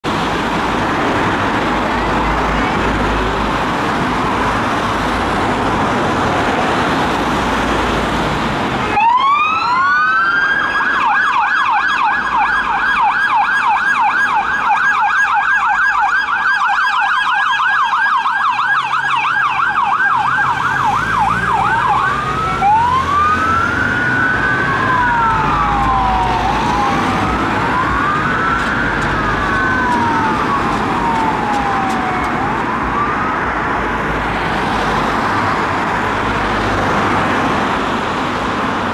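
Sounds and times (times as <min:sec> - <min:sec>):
road traffic noise: 0:00.0 - 0:38.9
police siren yelping and wailing: 0:08.8 - 0:38.2.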